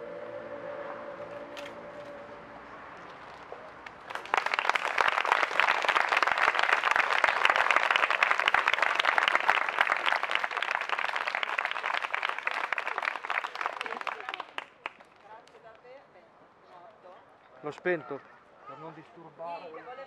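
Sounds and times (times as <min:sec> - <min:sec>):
crowd applauding: 0:03.9 - 0:15.3.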